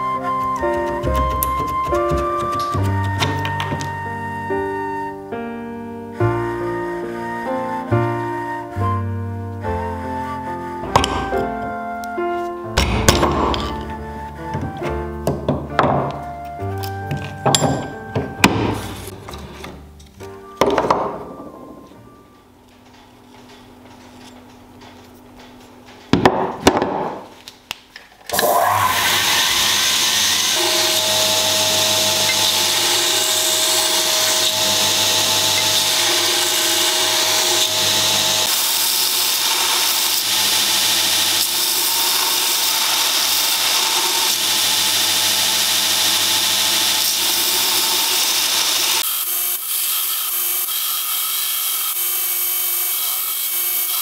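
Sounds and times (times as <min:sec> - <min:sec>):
belt grinder running: 0:28.6 - 0:54.0.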